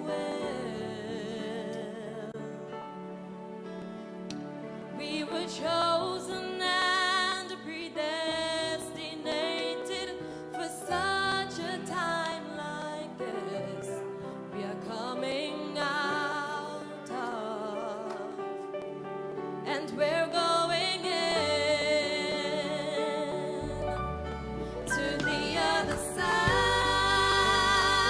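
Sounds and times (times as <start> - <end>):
woman singing gospel song: 0.0 - 2.7, 5.0 - 18.6, 19.6 - 24.0, 24.8 - 28.0
sustained instrumental accompaniment: 23.4 - 28.0.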